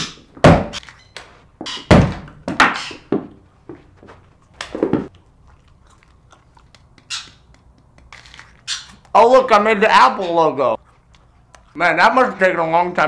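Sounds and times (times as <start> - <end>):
apples thudding on walls: 0.0 - 5.1.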